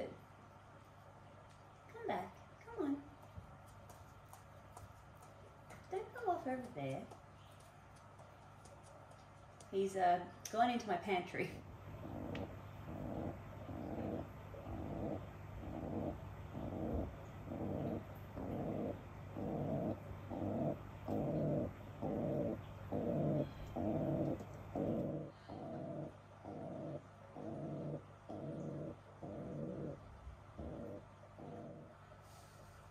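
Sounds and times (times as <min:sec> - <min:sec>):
pigeon cooing: 0:12.0 - 0:30.0, 0:30.6 - 0:31.9.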